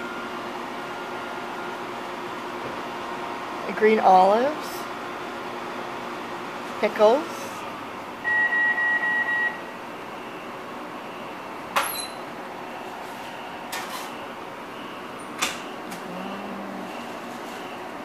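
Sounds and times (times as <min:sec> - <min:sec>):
background hum: 0:15.1 - 0:18.0.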